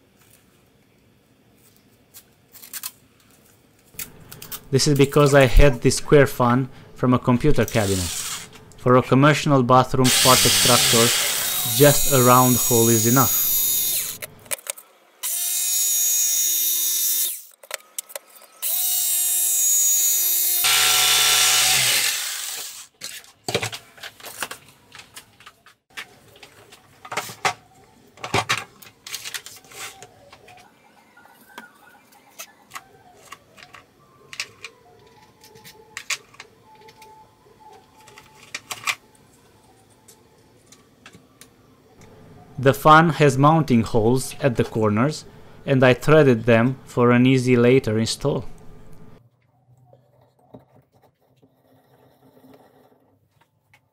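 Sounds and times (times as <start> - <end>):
electric jigsaw cutting: 7.8 - 8.5, 10.1 - 14.2, 15.2 - 17.5, 18.6 - 22.9.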